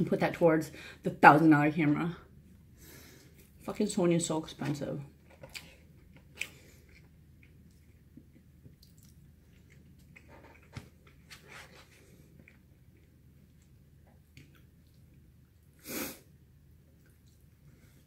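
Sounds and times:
soft chewing: 5.3 - 15.8, 16.8 - 18.0
sharp breath through nose: 15.8 - 16.3.

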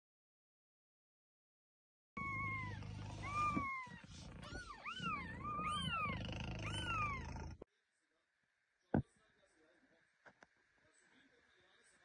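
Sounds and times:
kitten mewing: 2.2 - 7.6.

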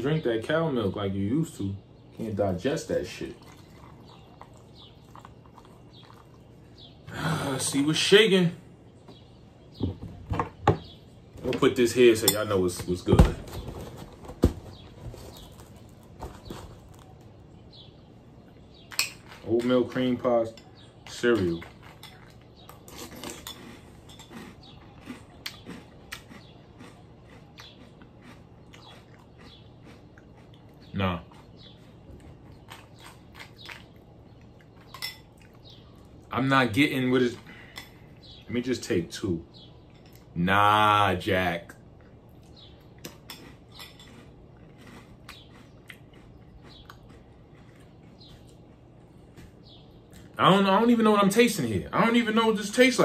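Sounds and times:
cereal crunching while chewing: 3.1 - 6.6, 21.1 - 36.2, 42.2 - 48.9.

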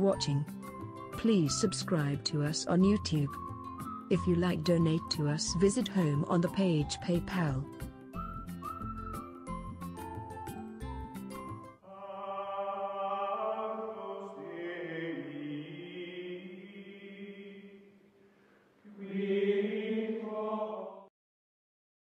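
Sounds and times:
choir-like chanting voices: 11.8 - 17.9, 18.8 - 21.1.

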